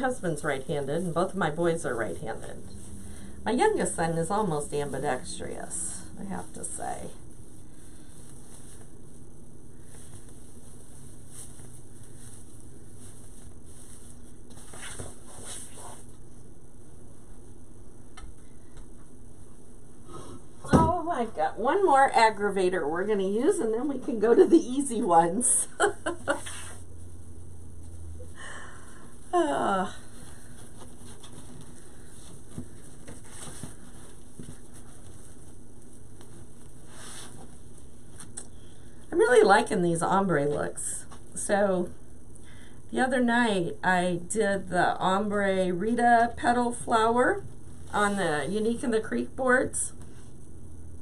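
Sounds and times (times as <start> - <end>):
steady background hum: 0.0 - 51.0
mesh rustling and crinkling: 7.4 - 16.4, 30.0 - 38.4.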